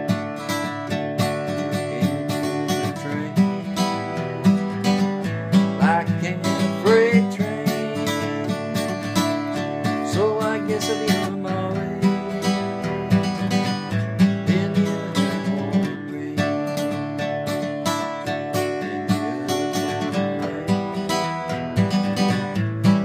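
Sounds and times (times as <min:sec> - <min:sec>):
acoustic guitar strumming: 0:00.0 - 0:23.0
person singing wordless notes: 0:01.4 - 0:05.1, 0:05.8 - 0:09.0, 0:10.1 - 0:13.6, 0:18.6 - 0:21.4.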